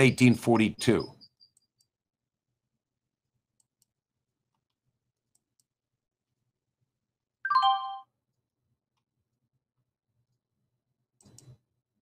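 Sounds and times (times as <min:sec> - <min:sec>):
faint clicks: 0:11.2 - 0:11.6.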